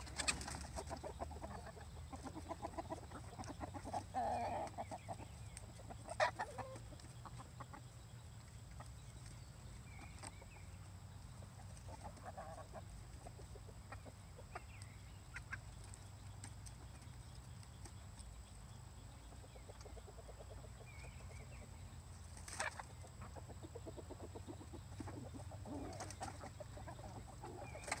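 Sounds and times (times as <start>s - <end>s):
hens clucking softly: 0.0s - 28.0s.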